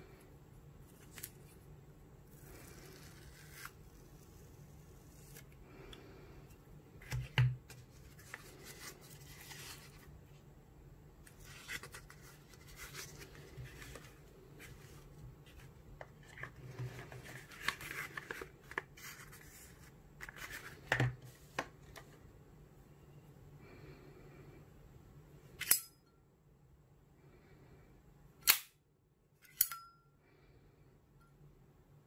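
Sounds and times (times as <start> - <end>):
paper rustling: 7.0 - 10.1, 11.3 - 22.2.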